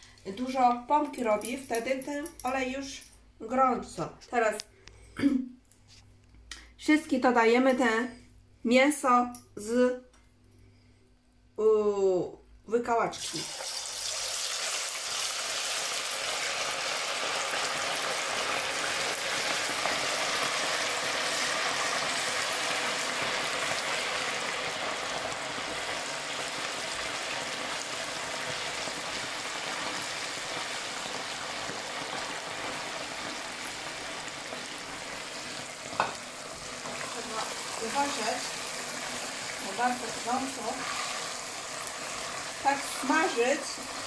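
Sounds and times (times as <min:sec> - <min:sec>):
meat sizzling in hot oil: 0:13.2 - 0:44.0.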